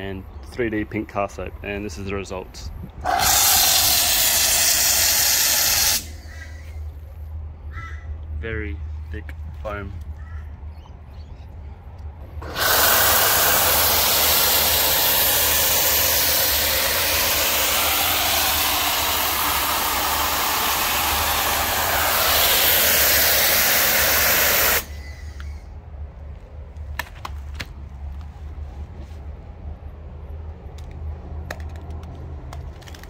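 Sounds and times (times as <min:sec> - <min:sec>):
foam cannon spraying hiss: 0:03.0 - 0:06.4, 0:12.4 - 0:25.1.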